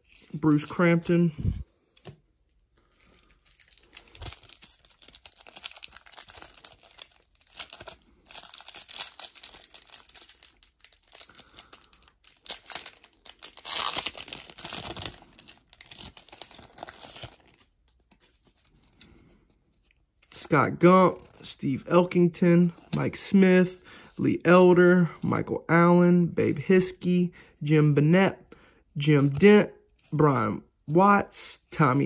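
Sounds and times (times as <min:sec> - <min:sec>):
foil wrapper crinkling and tearing: 0:03.2 - 0:18.7.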